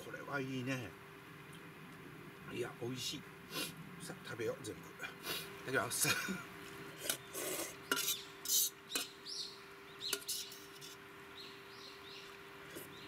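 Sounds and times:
bird chirping: 7.1 - 10.7, 11.3 - 13.0.

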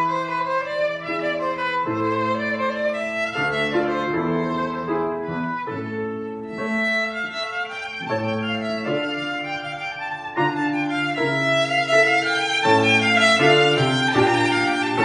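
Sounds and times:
violin playing classical melody: 0.0 - 15.0.

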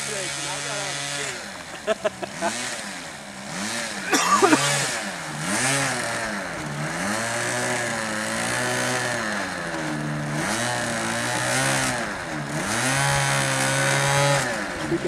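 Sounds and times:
model plane engine revving: 0.0 - 15.0.

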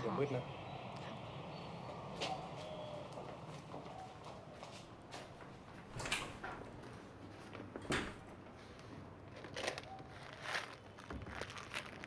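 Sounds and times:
footsteps: 1.9 - 7.9
door being handled: 5.8 - 6.8, 7.8 - 8.3.

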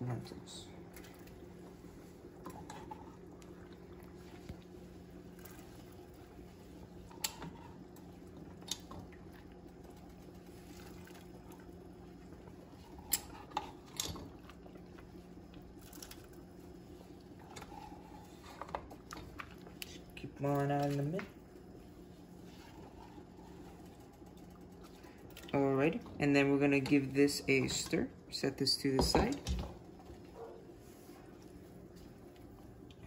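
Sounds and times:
soup bubbling in pot: 0.8 - 20.2, 21.4 - 25.5.

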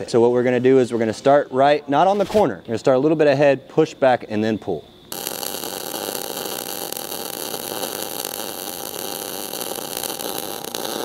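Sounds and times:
welding arc hissing and crackling: 5.1 - 11.0.

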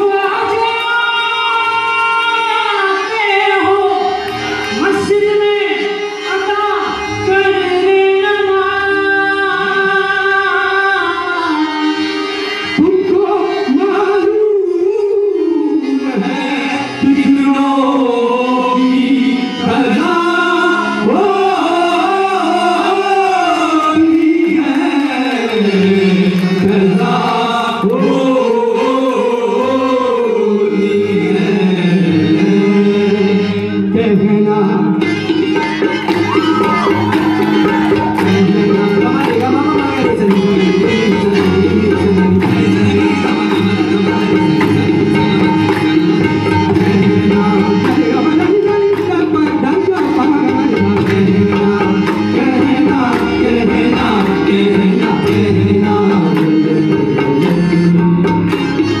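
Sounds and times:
instrumental accompaniment: 0.0 - 59.0.

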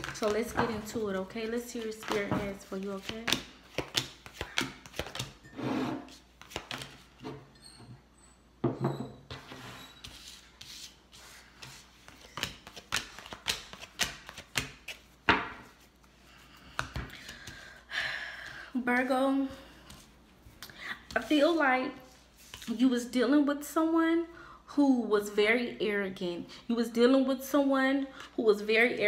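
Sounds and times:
cards being shuffled: 1.5 - 5.4, 6.4 - 7.1, 10.1 - 15.9.

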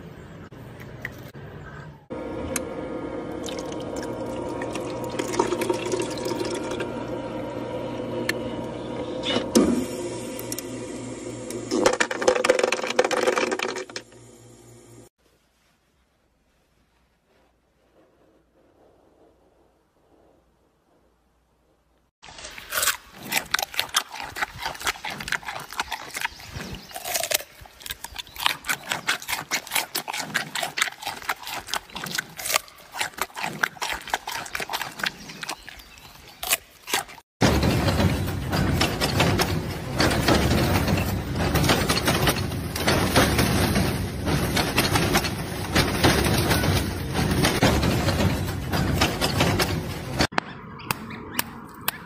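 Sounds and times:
panda crunching a carrot: 22.2 - 37.2.

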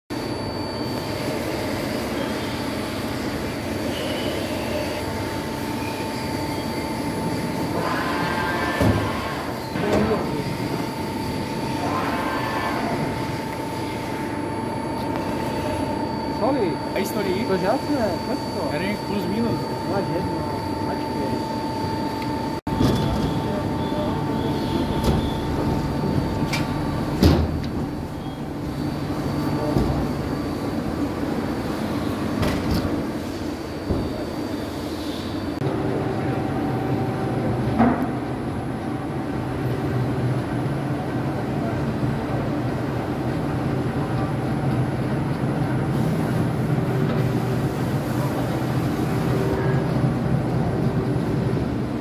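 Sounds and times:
high whine: 0.1 - 32.2
industrial machinery noise: 0.1 - 52.0.

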